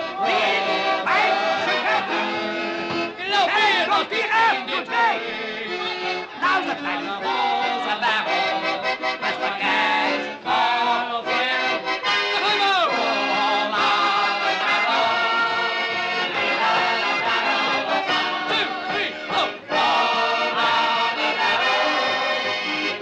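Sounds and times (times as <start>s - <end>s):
accordion band music: 0.0s - 23.0s
man singing: 3.2s - 15.0s.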